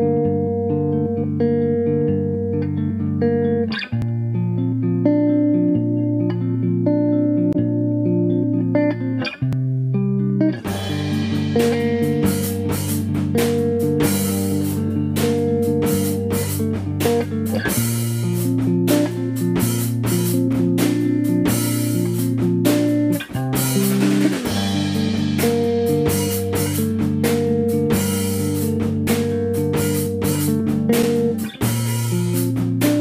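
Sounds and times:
guitar: 0.0s - 33.0s
bass line: 10.6s - 33.0s
drum kit beat: 10.6s - 33.0s.

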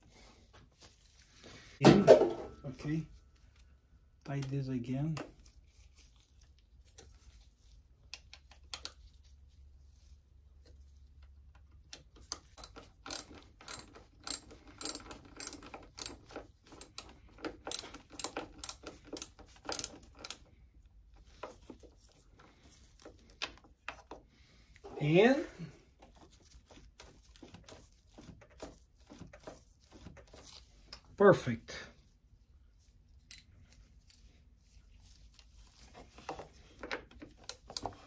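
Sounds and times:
socket ratchet clicking: 12.3s - 20.4s.

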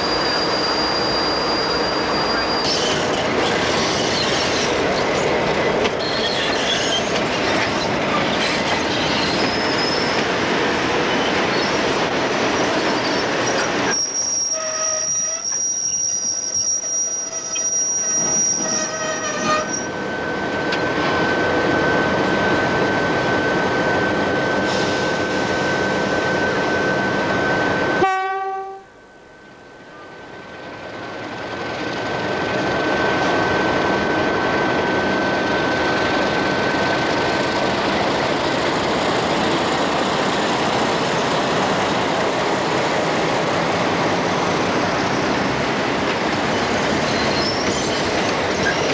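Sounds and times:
wheel flange squeal: 0.0s - 5.4s, 6.0s - 10.3s, 11.0s - 20.4s, 46.5s - 48.9s
diesel locomotive running: 0.0s - 48.9s.

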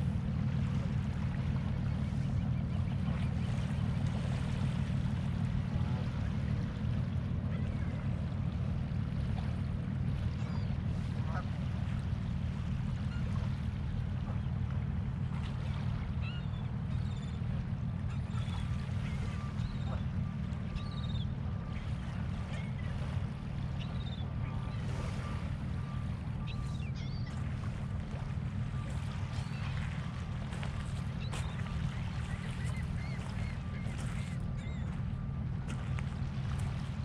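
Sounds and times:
steady low rumble: 0.0s - 37.0s
waterfowl honks and quacks: 11.2s - 11.6s.

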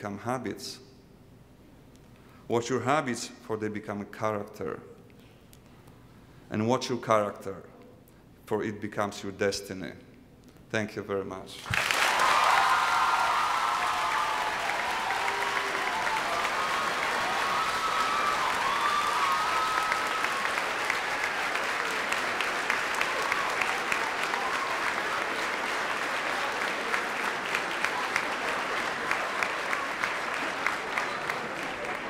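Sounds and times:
audience applauding: 11.6s - 32.0s.

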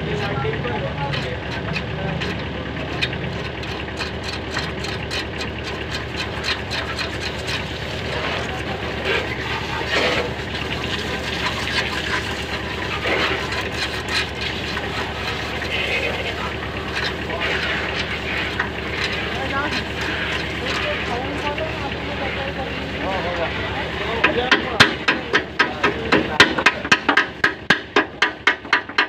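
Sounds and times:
engine running: 0.0s - 29.0s
metal clicks and scrapes: 0.1s - 21.8s.

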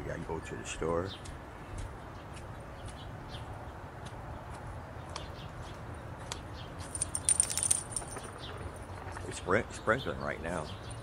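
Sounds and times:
small metal pieces jingling: 6.8s - 8.8s.

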